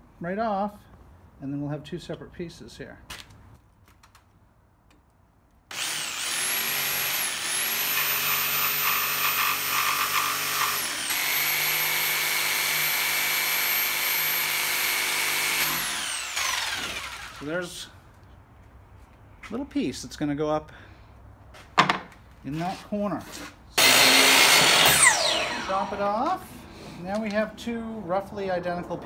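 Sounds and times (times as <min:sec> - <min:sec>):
jigsaw cutting wood: 0:05.7 - 0:17.5, 0:23.8 - 0:26.2.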